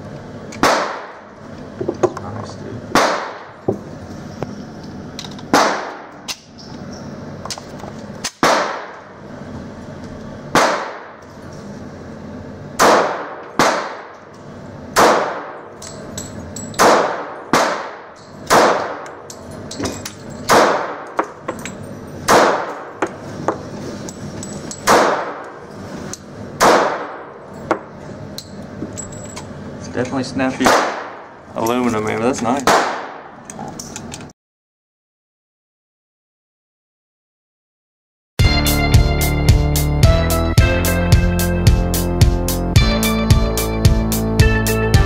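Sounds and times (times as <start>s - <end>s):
pistol shots echoing indoors: 0.6s - 1.2s, 2.9s - 3.5s, 5.5s - 6.1s, 8.2s - 9.0s, 10.5s - 11.2s, 12.8s - 14.2s, 15.0s - 15.8s, 16.8s - 19.2s, 20.5s - 21.3s, 22.3s - 23.0s, 24.8s - 25.5s, 26.6s - 27.4s, 30.6s - 31.3s, 32.6s - 33.4s.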